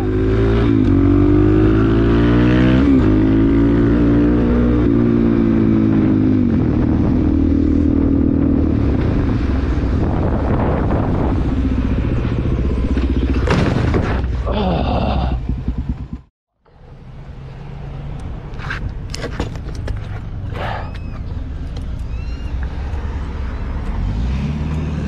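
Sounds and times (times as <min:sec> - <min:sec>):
wind noise on microphone: 0:04.9 - 0:14.4
dirt bike engine running: 0:11.6 - 0:16.3.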